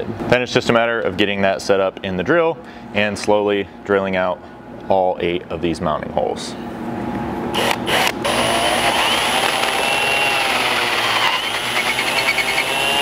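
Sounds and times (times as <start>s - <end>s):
cordless drill drilling sheet metal: 7.6s - 13.0s.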